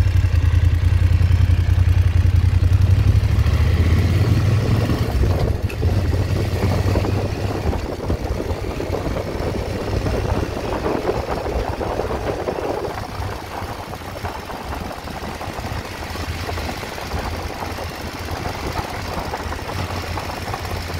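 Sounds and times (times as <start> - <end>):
motorcycle engine rumbling: 0.0 - 20.9.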